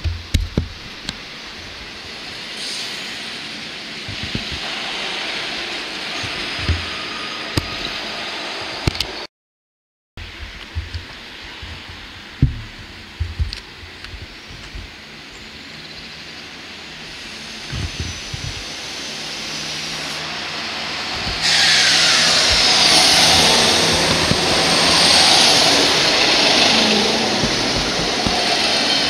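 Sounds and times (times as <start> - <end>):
wheels rushing on rail: 0.9 - 9.2, 10.2 - 29.0
passenger train passing: 1.2 - 9.2, 16.1 - 29.0
high whining tones: 17.4 - 29.0.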